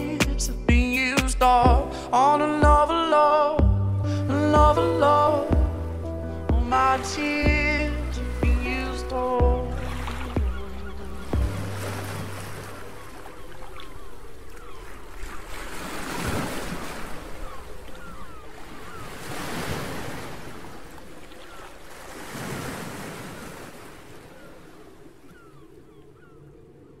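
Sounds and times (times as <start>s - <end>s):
sea waves washing in: 1.8s - 26.2s.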